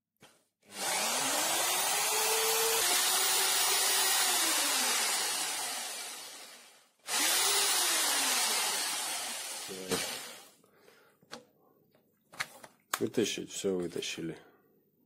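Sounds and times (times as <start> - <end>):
power drill motor whining: 0.7 - 10.5.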